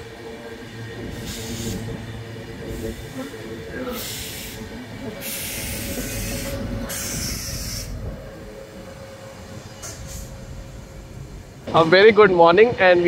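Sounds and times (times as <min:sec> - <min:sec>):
train rumbling: 0:00.0 - 0:13.0
rushing hiss: 0:01.1 - 0:08.0.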